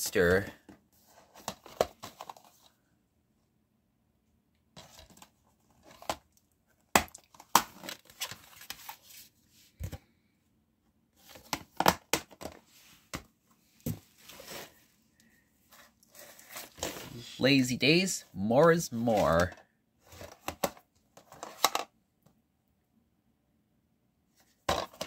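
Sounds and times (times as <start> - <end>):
plastic cases crinkling and clicking: 0.7 - 2.8, 4.8 - 9.0, 19.3 - 21.9, 24.6 - 25.0.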